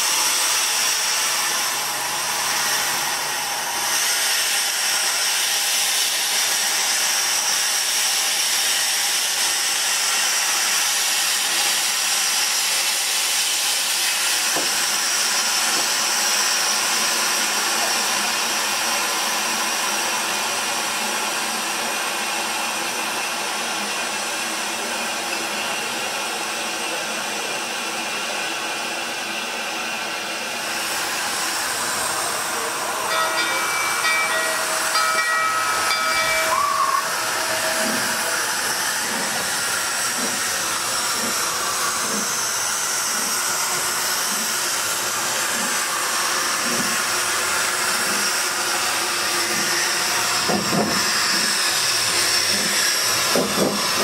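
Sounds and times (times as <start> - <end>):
steam hissing: 0.0 - 18.1, 30.6 - 54.0
steam locomotive exhaust beats: 30.4 - 54.0
yard bell ringing: 33.0 - 38.2.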